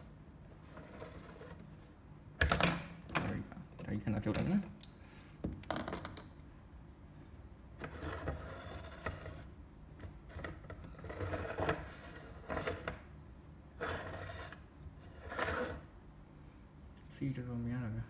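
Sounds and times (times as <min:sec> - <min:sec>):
base scraping on wooden tabletop: 0:00.6 - 0:01.9, 0:07.8 - 0:13.1, 0:13.8 - 0:15.9.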